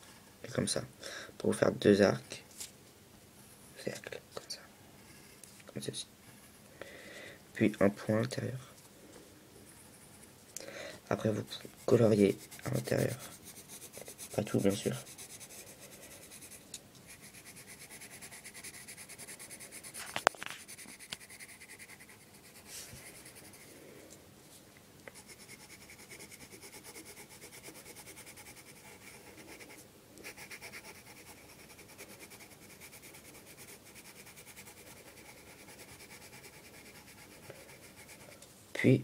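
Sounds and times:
pencil scratching on paper: 0:11.2 - 0:23.7, 0:25.2 - 0:38.3.

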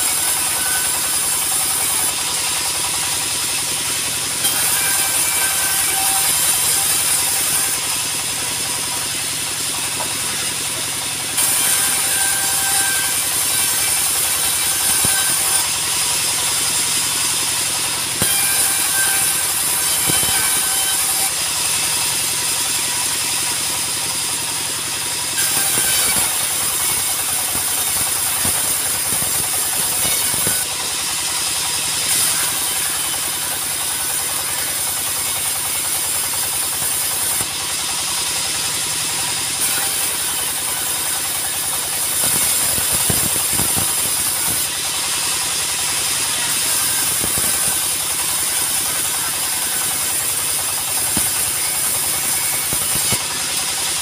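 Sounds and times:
band saw blade hissing through wood: 0:00.0 - 0:54.0
diesel engine running: 0:34.8 - 0:39.6.

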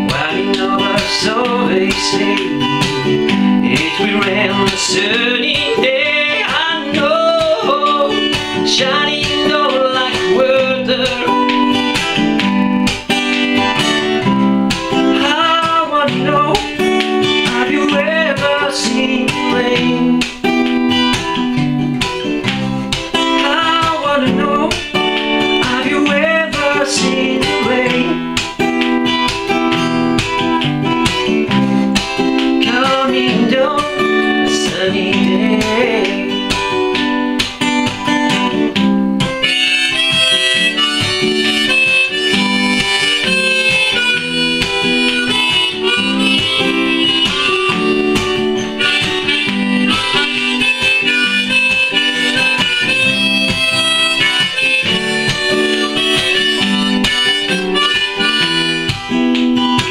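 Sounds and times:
strummed acoustic guitar: 0:00.0 - 0:59.9
harmonica solo: 0:39.3 - 0:59.9.

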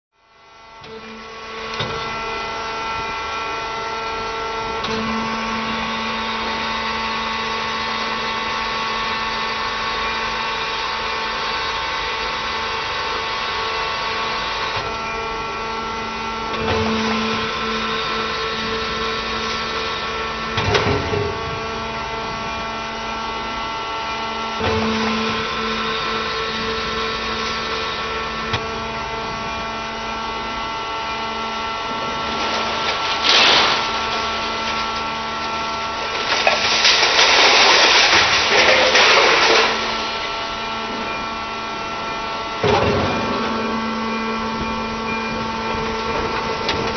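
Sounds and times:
baling press mechanical whine: 0:00.2 - 0:46.9
metal clatter: 0:31.9 - 0:35.2, 0:36.0 - 0:40.2.

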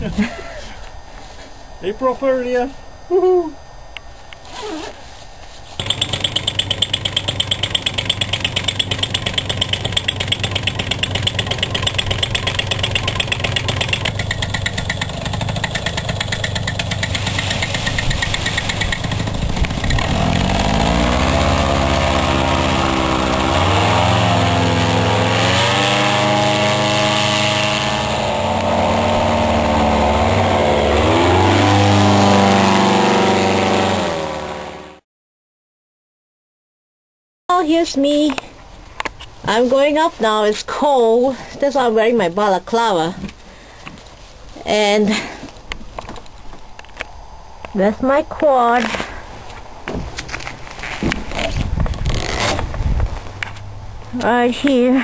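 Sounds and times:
paramotor engine running: 0:05.8 - 0:35.0.

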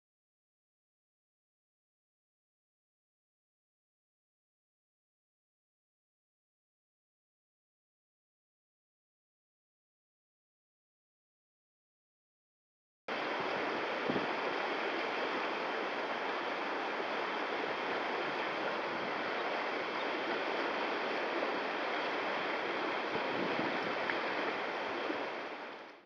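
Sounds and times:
rapids rushing over boulders: 0:13.1 - 0:26.0.

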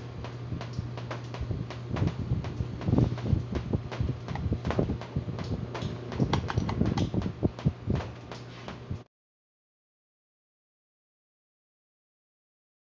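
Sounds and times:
electric fan motor hum: 0:00.0 - 0:09.1
clicks and knocks handling fan: 0:00.2 - 0:09.0.

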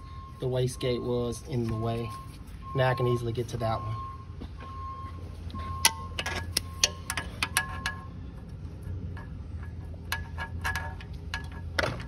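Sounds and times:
metal tool clinking on metal: 0:05.8 - 0:08.1.

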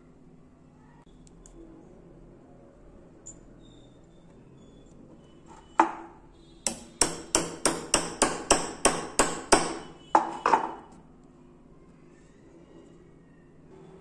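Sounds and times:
hammer striking steel punch: 0:06.6 - 0:10.8.

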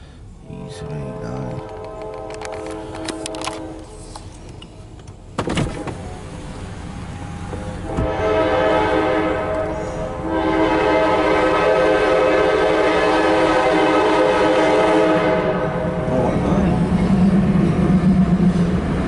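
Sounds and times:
low rumble of train: 0:00.0 - 0:19.0
locomotive air horn blast: 0:00.4 - 0:04.2, 0:07.6 - 0:16.1.

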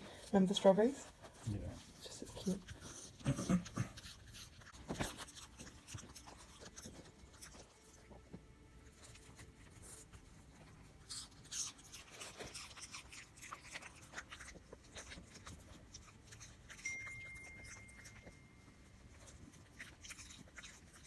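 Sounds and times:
puppy chewing food: 0:00.0 - 0:21.0
thin high tone: 0:16.7 - 0:18.9.

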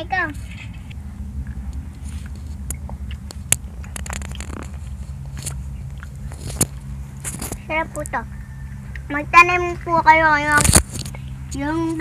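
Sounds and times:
steady low hum: 0:00.0 - 0:12.0
child chewing with wet smacks: 0:01.4 - 0:07.6, 0:08.6 - 0:09.1.

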